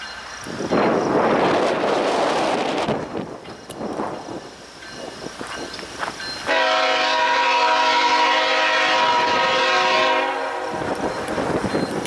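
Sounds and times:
locomotive air horn: 6.5s - 10.9s.

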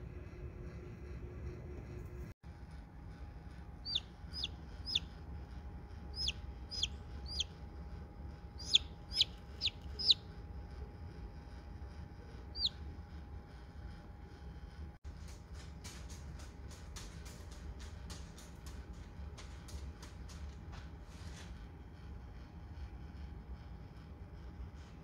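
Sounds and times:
steady low hum: 0.0s - 25.0s
chick peeping: 3.8s - 5.1s, 6.1s - 7.6s, 8.6s - 10.3s, 12.5s - 12.8s.

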